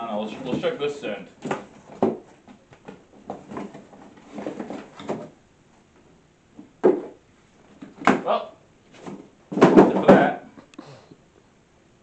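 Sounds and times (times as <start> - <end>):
cardboard box bump: 1.4 - 5.3, 6.8 - 7.2, 8.9 - 10.4
cardboard flaps scraping and rustling: 1.4 - 5.3, 8.9 - 10.3.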